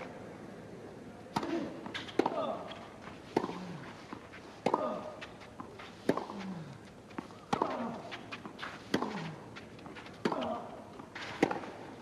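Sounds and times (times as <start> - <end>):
tennis ball struck by racket: 1.3 - 2.6, 3.3 - 3.7, 4.6 - 5.2, 6.0 - 6.4, 7.5 - 9.3, 10.2 - 10.6, 11.2 - 12.0.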